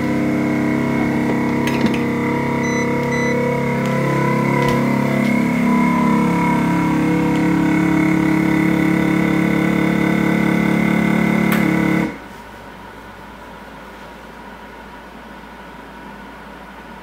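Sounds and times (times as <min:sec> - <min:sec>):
vacuum sealer pump humming: 0:00.0 - 0:12.3.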